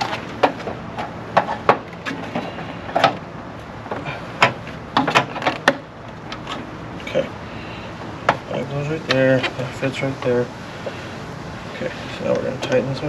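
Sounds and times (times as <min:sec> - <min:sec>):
plastic parts knocking and clicking: 0:03.9 - 0:06.6.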